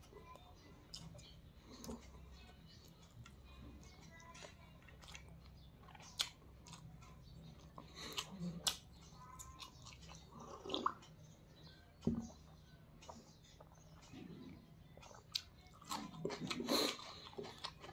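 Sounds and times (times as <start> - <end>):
person chewing: 0.8 - 11.2, 12.0 - 17.9.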